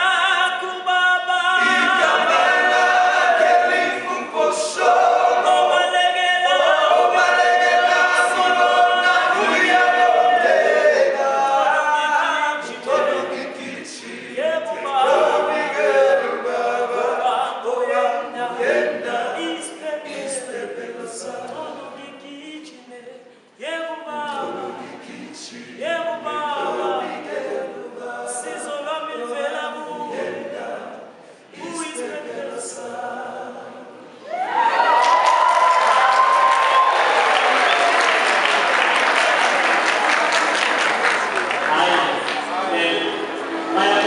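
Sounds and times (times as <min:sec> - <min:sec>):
men's choir singing a cappella: 0:00.0 - 0:34.2, 0:41.7 - 0:44.0.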